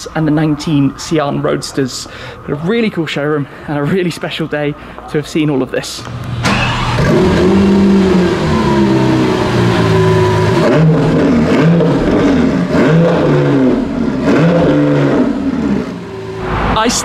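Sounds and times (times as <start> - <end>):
sports car engine revving: 6.0 - 17.0.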